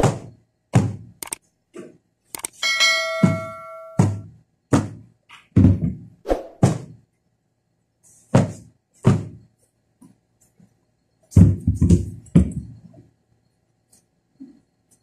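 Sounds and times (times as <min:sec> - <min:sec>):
bell-like ding: 0:02.6 - 0:04.2.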